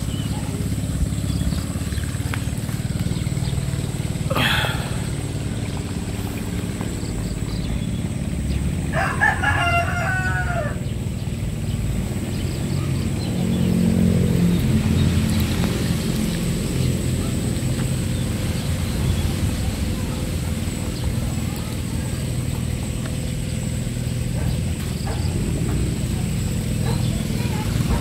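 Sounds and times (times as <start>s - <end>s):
tractor engine running: 0.0s - 28.0s
rooster crowing: 8.9s - 10.9s.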